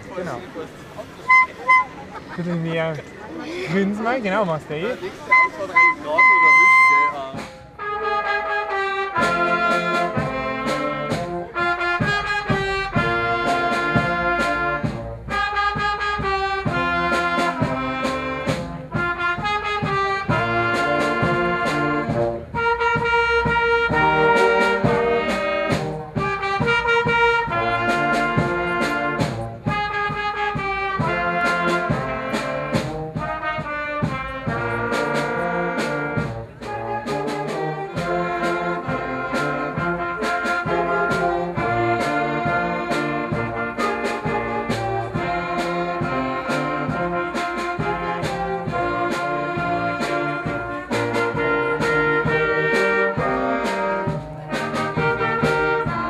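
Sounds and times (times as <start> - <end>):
wind band playing: 0.0 - 56.0.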